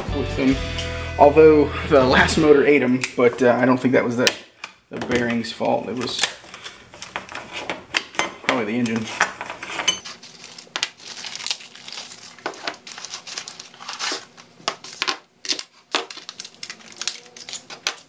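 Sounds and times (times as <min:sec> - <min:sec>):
packaging crinkling and tearing: 0:08.7 - 0:18.0.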